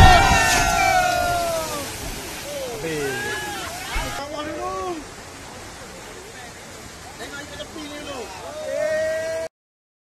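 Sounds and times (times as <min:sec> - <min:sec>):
person's long high-pitched shout: 0:08.6 - 0:09.5.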